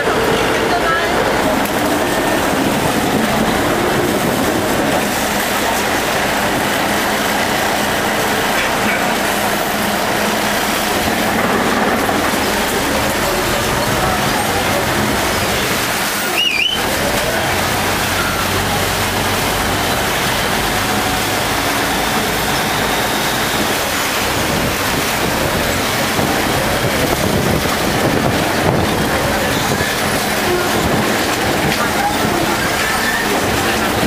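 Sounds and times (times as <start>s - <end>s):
boat engine running: 0.0s - 34.0s
water rushing along hull: 0.0s - 34.0s
wavering whistle: 16.2s - 16.9s.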